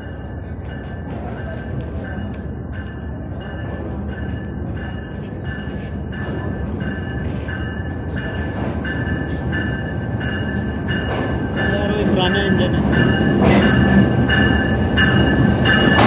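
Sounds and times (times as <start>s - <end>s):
locomotive engine and wheels rumbling: 0.0s - 16.0s.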